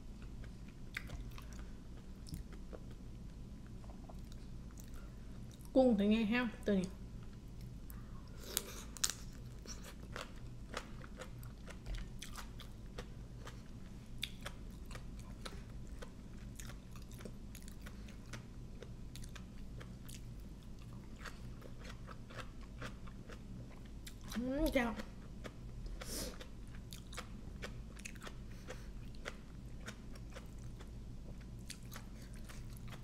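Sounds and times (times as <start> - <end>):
low hum: 0.0 - 33.0
chewing crunchy vegetables: 7.4 - 33.0.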